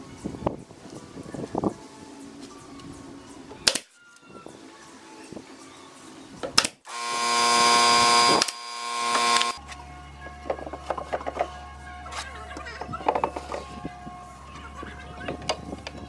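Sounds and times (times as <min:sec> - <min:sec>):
nail gun firing: 0:06.6 - 0:09.6.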